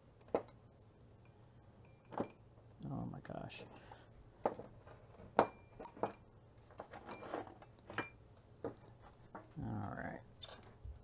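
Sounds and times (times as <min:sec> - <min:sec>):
metal pipe clinking on workbench: 0:01.8 - 0:02.4, 0:05.4 - 0:06.2.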